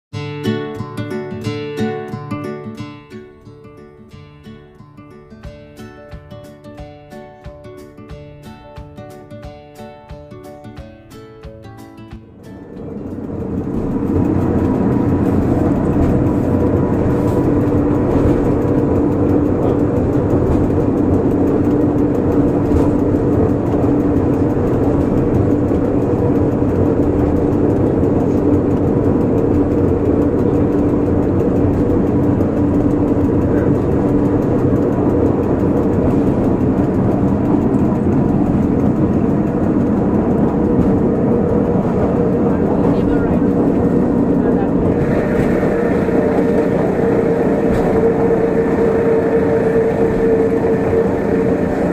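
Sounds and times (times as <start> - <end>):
constant motor whine: 12.3 - 51.9
rack railway car droning: 12.3 - 51.9.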